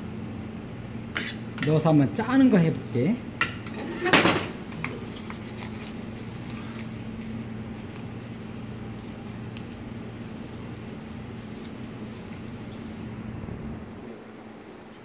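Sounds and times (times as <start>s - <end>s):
steady low hum: 0.0s - 15.0s
metal spoon scraping ceramic bowl: 1.2s - 1.8s.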